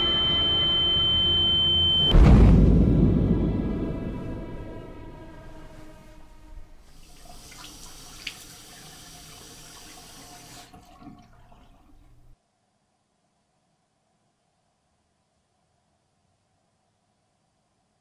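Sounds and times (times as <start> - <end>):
tap water running into sink: 6.9 - 12.4.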